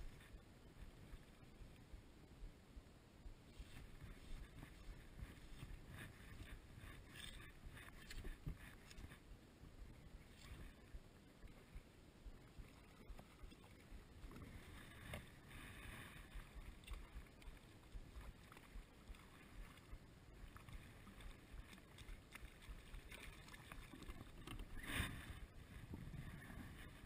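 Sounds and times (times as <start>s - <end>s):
shallow water lapping: 3.3s - 27.0s
water swish: 3.4s - 27.0s
wind noise: 24.8s - 27.0s.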